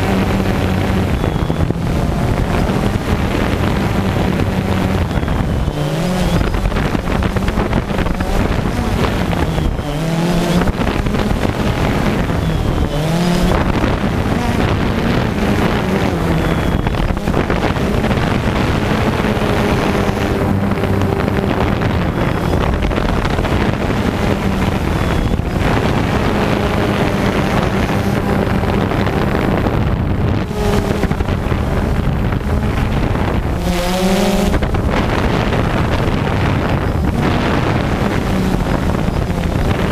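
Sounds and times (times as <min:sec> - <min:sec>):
drone propellers buzzing: 0:00.0 - 0:39.9
wind noise on microphone: 0:00.0 - 0:39.9.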